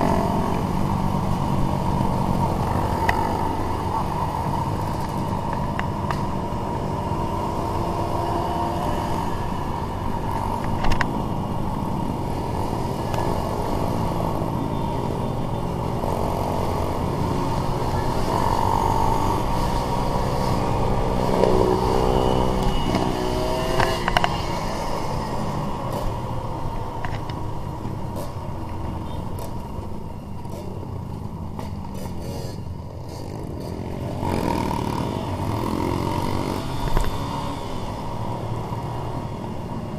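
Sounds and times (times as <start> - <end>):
other trail bikes: 0.0 - 39.9.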